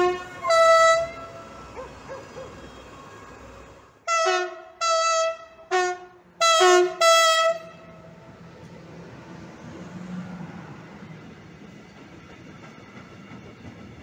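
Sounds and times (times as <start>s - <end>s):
two-tone locomotive horn: 0.0s - 1.8s, 2.4s - 3.2s, 4.0s - 8.1s
freight train rumbling past: 0.0s - 14.0s.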